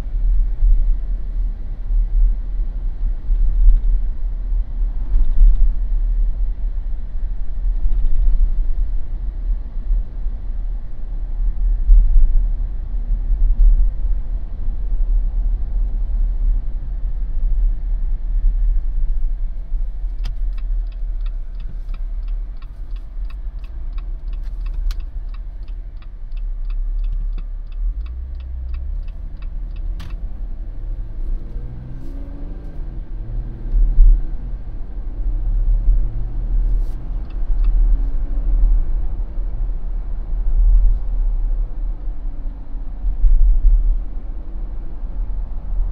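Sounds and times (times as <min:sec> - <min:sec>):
road and engine rumble: 0:00.0 - 0:45.9
turn signal clicking: 0:20.0 - 0:33.0, 0:35.6 - 0:38.0.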